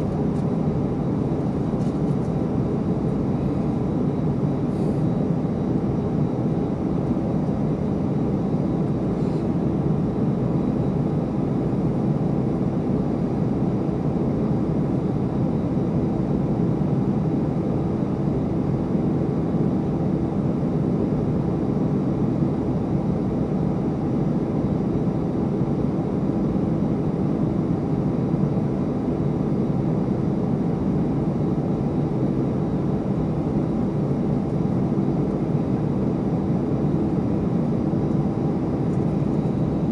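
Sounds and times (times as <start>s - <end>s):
jet engines humming: 26.1s - 39.9s.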